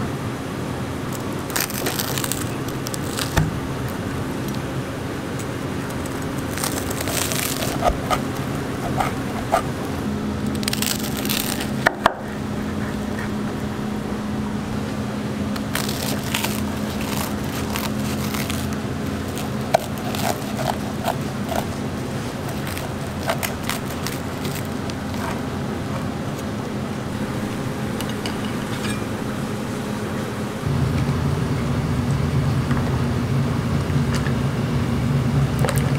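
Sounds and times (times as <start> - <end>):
steady low hum: 0.0 - 35.9
knife slicing toasted bread: 6.3 - 9.8, 15.6 - 25.4.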